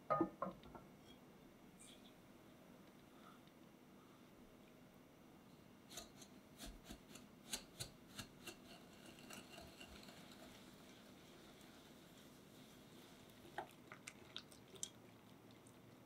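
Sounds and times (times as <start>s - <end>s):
whisk stirring: 6.0s - 13.1s.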